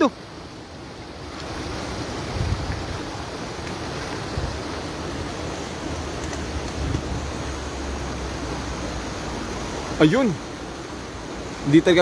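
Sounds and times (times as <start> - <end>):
shallow river water rushing: 0.0 - 12.0
wind on microphone: 1.5 - 7.6.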